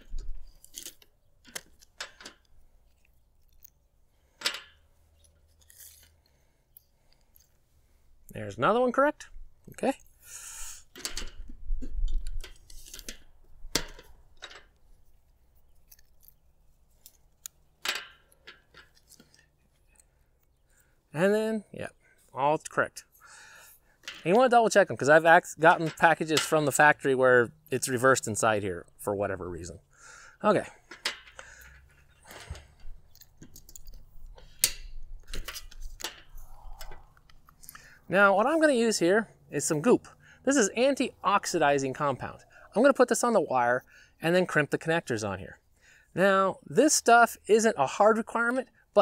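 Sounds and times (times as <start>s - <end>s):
cables rustling: 0.0s - 8.5s, 10.8s - 21.0s, 29.6s - 42.6s.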